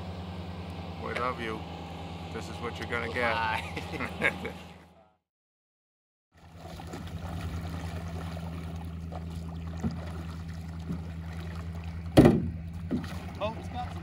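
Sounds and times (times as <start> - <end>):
steady low hum: 0.0 - 5.1, 6.4 - 14.0
water sloshing around boat: 6.4 - 14.0
paddle strokes: 6.6 - 12.1
loud thump: 12.2 - 13.0.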